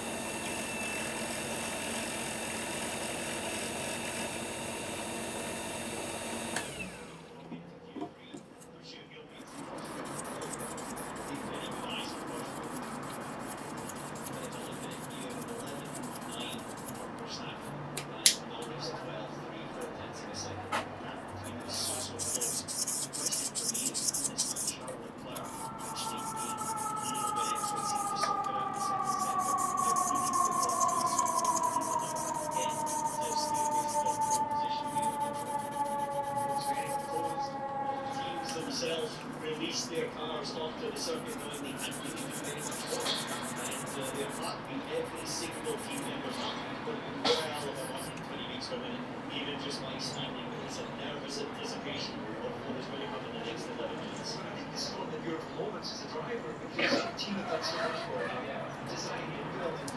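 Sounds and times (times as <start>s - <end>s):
lathe whine: 0.0s - 7.3s, 9.5s - 17.1s, 21.5s - 44.4s
hand rubbing spinning wood: 9.4s - 17.1s, 21.4s - 46.4s, 47.6s - 48.2s
sandpaper rasping on wood: 9.5s - 17.1s, 21.5s - 37.4s, 41.0s - 44.5s, 45.1s - 46.3s.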